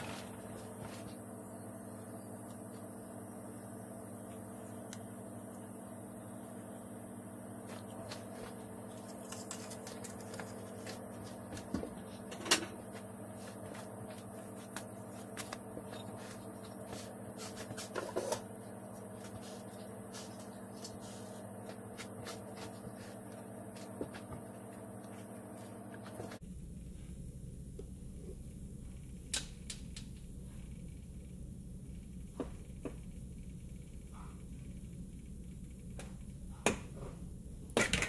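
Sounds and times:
low hum: 0.0 - 38.0
hands handling bread: 7.7 - 18.3.

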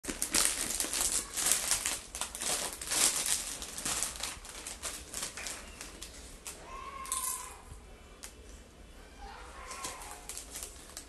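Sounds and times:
crisp packet crinkling: 0.0 - 7.4, 9.6 - 11.0.

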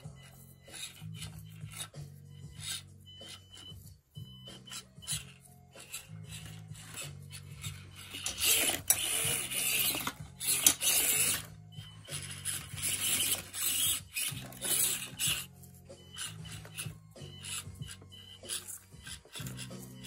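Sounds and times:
electric motor whirring: 4.6 - 20.0.

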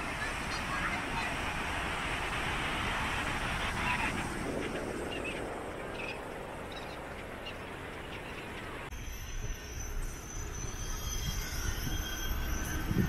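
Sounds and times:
surf: 0.0 - 8.8
distant voices: 0.0 - 12.9
wind: 0.0 - 13.0.

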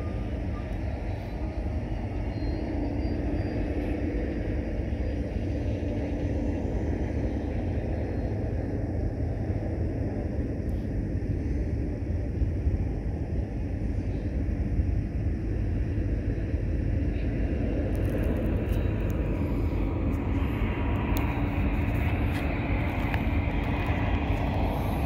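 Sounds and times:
freight train rolling by: 0.0 - 10.5, 15.4 - 25.0
diesel locomotive drone: 0.0 - 25.0.

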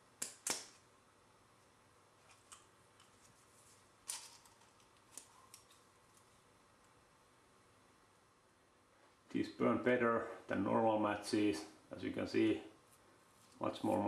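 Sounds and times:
matches rattling: 4.0 - 5.8.

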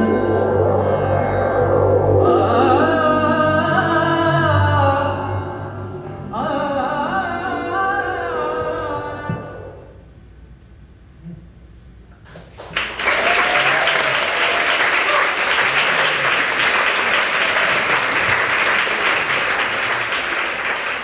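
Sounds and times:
audience applauding: 12.3 - 21.0.

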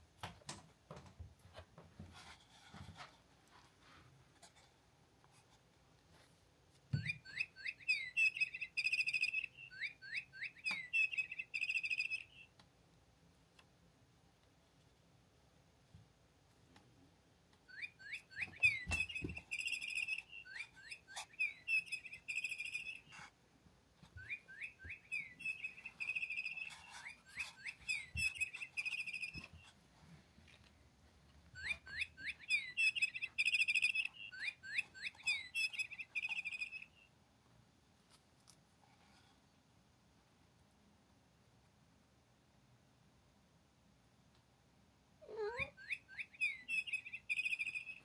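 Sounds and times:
electronic bird toy chirping: 7.0 - 12.5, 17.7 - 23.2, 24.2 - 29.6, 31.6 - 37.0, 45.3 - 48.0.

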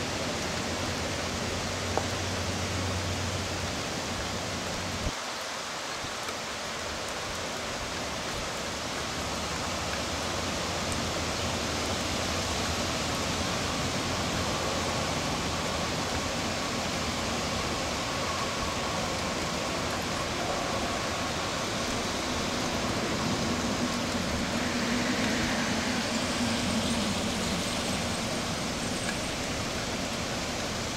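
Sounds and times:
heavy rain: 0.0 - 30.9.

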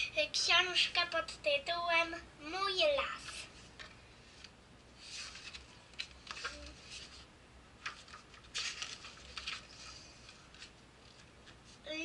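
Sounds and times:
book pages turning: 3.2 - 11.8.

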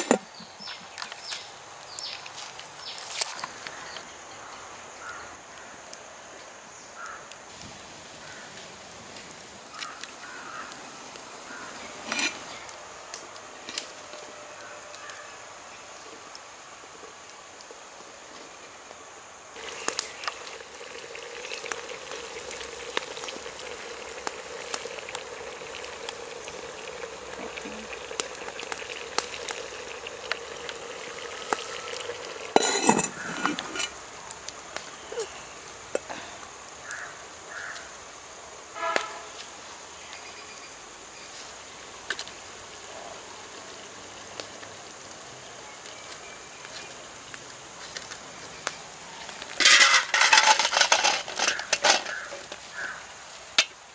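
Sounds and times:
wood fire crackling: 0.0 - 4.0, 7.3 - 53.9
simmering hiss with pops: 0.0 - 53.9
clattering: 49.6 - 52.2.

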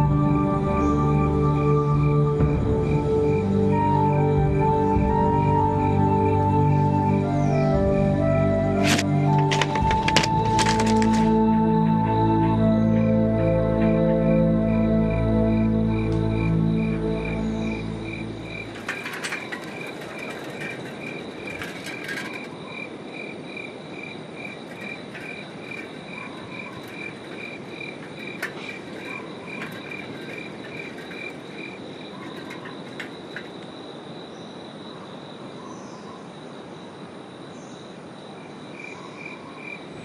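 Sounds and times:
cricket chirping: 0.0 - 40.0
frogs: 0.0 - 40.0
insect trill: 0.0 - 40.0
faint clicks: 24.5 - 33.8.

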